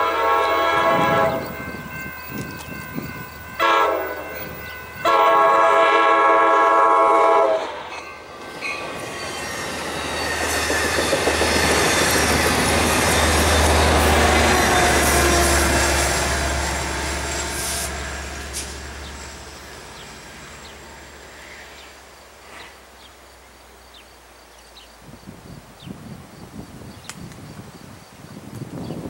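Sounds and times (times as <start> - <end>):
diesel locomotive engine hum: 0.0 - 24.3.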